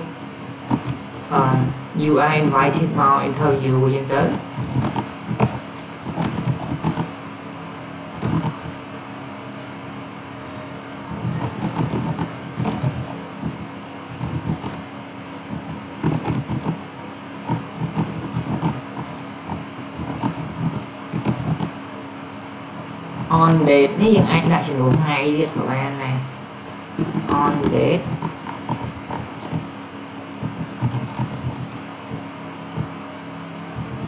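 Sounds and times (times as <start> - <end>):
steady low hum: 0.0 - 34.0
keyboard typing clicks: 4.3 - 7.1, 8.2 - 8.8, 11.2 - 14.8, 15.4 - 16.8, 17.5 - 21.7, 26.6 - 29.7, 30.4 - 32.2.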